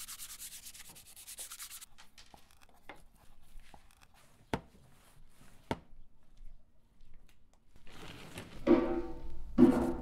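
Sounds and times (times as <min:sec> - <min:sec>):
sandpaper scraping wood: 0:00.0 - 0:01.9.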